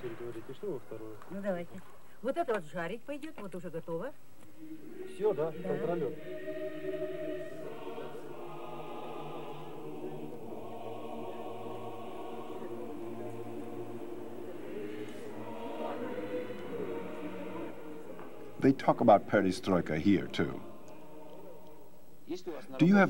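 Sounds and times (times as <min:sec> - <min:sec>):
choir singing held chords: 0:04.5 - 0:22.2.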